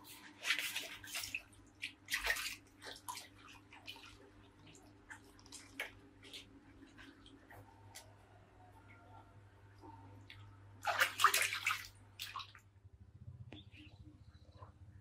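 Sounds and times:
water splashing and dripping: 0.0s - 8.2s, 10.2s - 12.7s.

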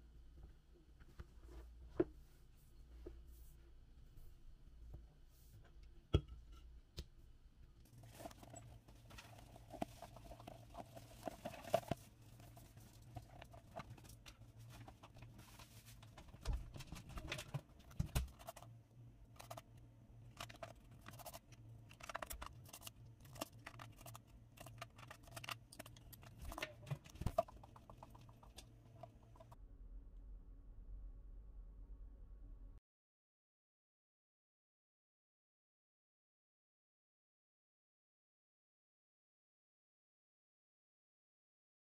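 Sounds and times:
faint low hum: 0.0s - 32.8s.

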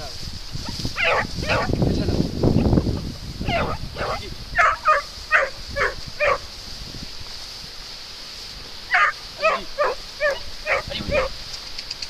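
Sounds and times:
dog yelping: 1.0s - 1.7s, 3.4s - 6.4s, 8.9s - 11.4s.

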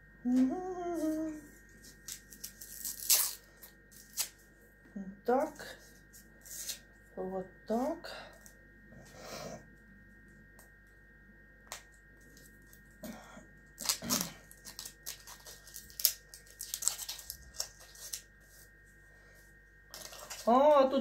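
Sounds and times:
foil crinkling and tearing: 1.8s - 4.4s, 13.8s - 18.5s, 19.9s - 20.5s.

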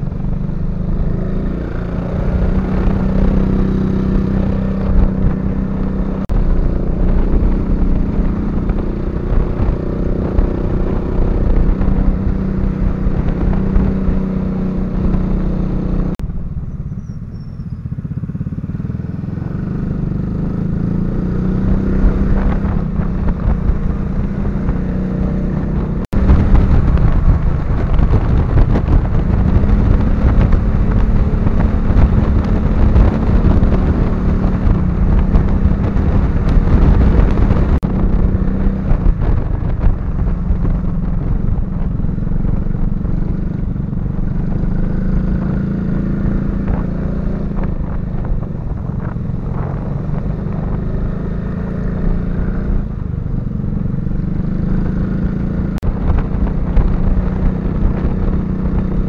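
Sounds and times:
scooter engine running: 0.0s - 59.0s
wind rushing over microphone: 0.0s - 59.0s.

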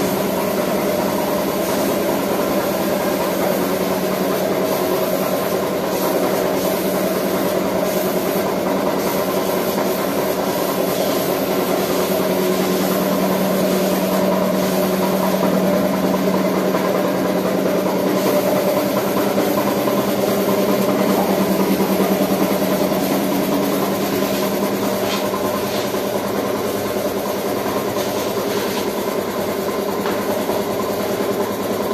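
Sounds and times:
air hissing: 0.0s - 15.8s
air compressor humming: 0.0s - 31.9s.

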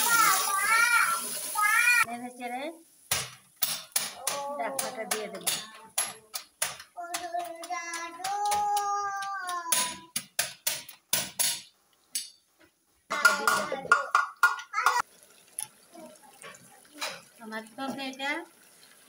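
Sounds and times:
spatula clicking against pan: 3.6s - 12.4s.

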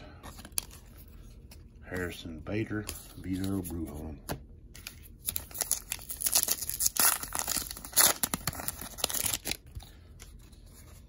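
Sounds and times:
foil wrapper tearing and crinkling: 5.3s - 9.7s.

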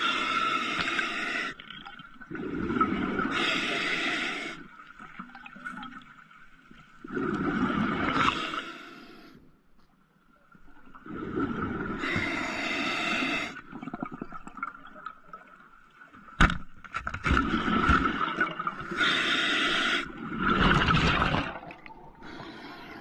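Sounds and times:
gurgle of exhaled bubbles: 1.7s - 3.4s, 7.0s - 8.6s, 10.9s - 12.2s, 13.6s - 15.5s, 17.3s - 19.0s, 20.1s - 23.0s
regulator hissing inhalations: 12.0s - 13.6s, 18.9s - 20.1s.

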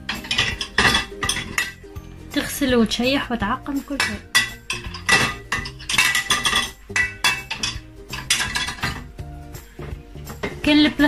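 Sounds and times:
plates clinking: 0.0s - 2.0s, 4.0s - 9.2s
background music: 0.0s - 11.0s.

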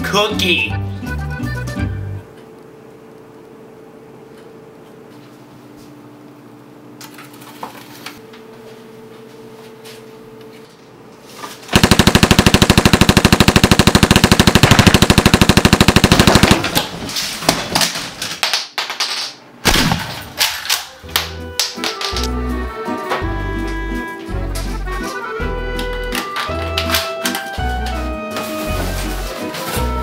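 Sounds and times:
automatic gunfire burst: 11.7s - 17.1s
single gunshots: 19.6s - 20.2s.

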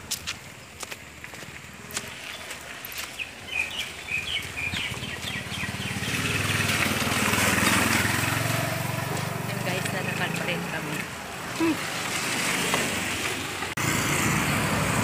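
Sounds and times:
vehicle engine approaching: 0.5s - 15.0s
bird chirping: 1.9s - 6.8s.

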